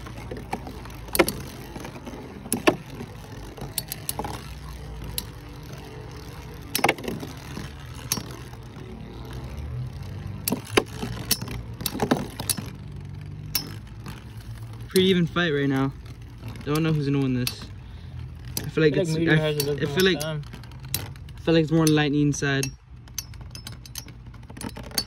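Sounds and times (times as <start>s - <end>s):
spinning tops whirring: 0.0s - 22.0s
sharp metallic clacks: 18.5s - 25.0s.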